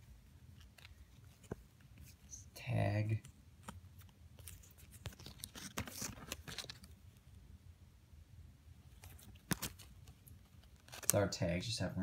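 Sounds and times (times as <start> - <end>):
hands handling a tag: 2.9 - 7.0, 8.9 - 11.2.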